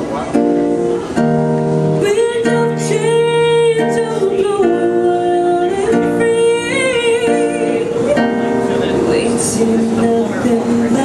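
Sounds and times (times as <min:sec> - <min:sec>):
acoustic guitar: 0:00.0 - 0:11.0
woman singing long notes: 0:02.0 - 0:08.4.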